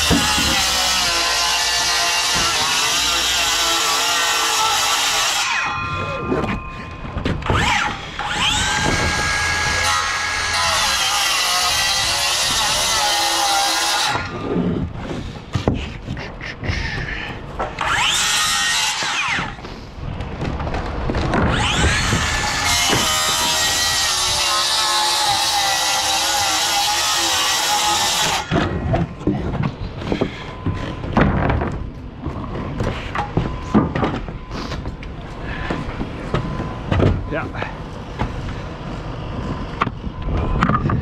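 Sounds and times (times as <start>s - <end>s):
circular saw cutting: 0.0s - 14.5s, 17.7s - 19.6s, 21.5s - 28.6s
sharp knocks and clatter: 28.5s - 34.9s.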